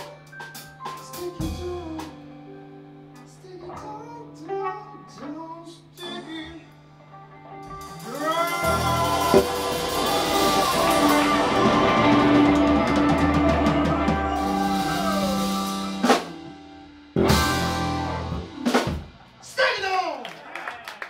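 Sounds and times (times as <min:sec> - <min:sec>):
live rock band playing: 0:00.0 - 0:05.1, 0:06.0 - 0:19.6
busy drumming: 0:07.8 - 0:19.4.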